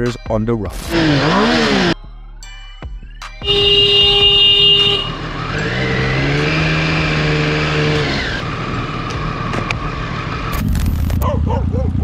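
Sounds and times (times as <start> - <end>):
motorcycle engine accelerating: 0.8 - 2.0, 4.8 - 12.0
horn blaring: 3.4 - 8.4.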